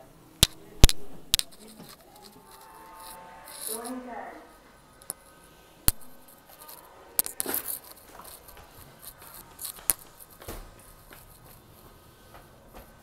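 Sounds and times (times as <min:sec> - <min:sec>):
footsteps on hard floor: 0:05.9 - 0:13.0.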